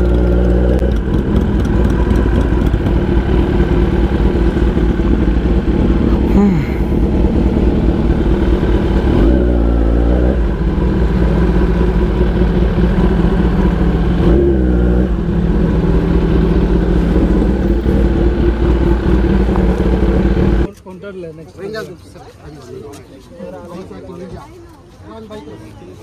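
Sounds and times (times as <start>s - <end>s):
motorcycle engine through loud exhaust: 0.0s - 20.7s.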